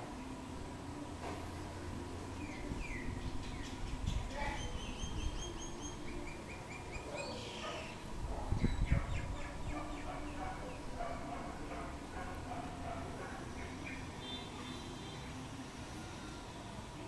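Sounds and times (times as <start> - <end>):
myna whistled calls: 2.4 - 8.0.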